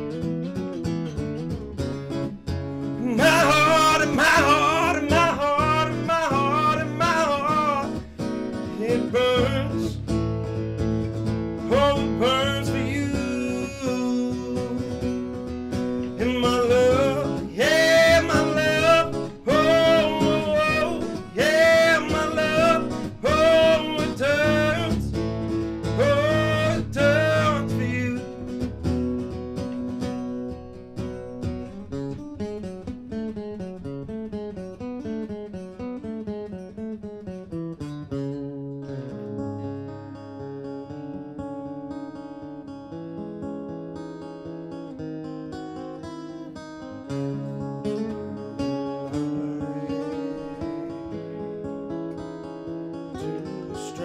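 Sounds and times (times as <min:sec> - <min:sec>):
acoustic guitar: 0:00.0 - 0:54.0
man singing: 0:03.0 - 0:10.1, 0:11.6 - 0:15.3, 0:16.0 - 0:28.5, 0:49.0 - 0:50.8, 0:53.8 - 0:54.0.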